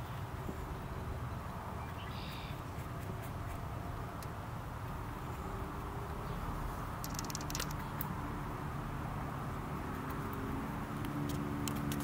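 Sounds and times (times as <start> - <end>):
distant traffic rumble: 0.0 - 12.0
faint engine hum: 0.0 - 12.0
faint clicks: 7.0 - 8.1.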